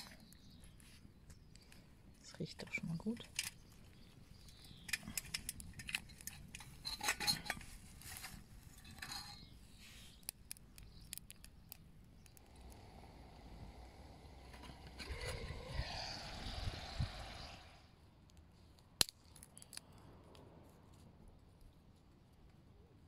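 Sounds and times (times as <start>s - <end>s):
kindling crackling: 0.0s - 22.6s
small metal clinks: 3.2s - 12.7s
camp stove burning hiss: 4.5s - 17.9s.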